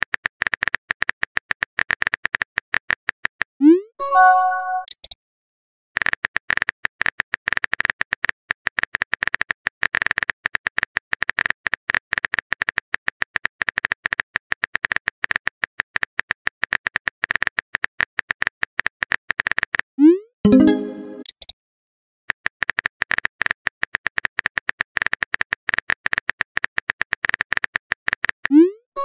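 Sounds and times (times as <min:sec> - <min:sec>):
message chime: 0:04.0 - 0:04.9, 0:20.5 - 0:21.3
rapid keyboard typing clicks: 0:22.6 - 0:28.6.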